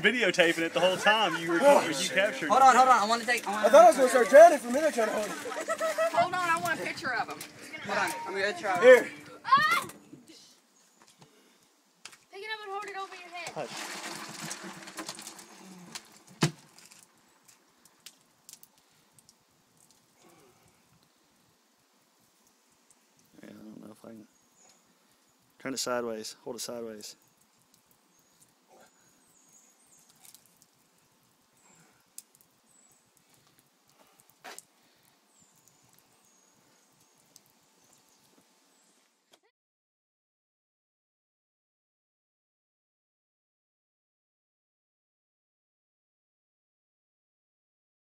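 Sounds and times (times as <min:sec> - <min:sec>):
water splashing and rustling: 0:00.0 - 0:39.2
faint high chirps and clicks: 0:22.3 - 0:23.4, 0:27.1 - 0:39.4.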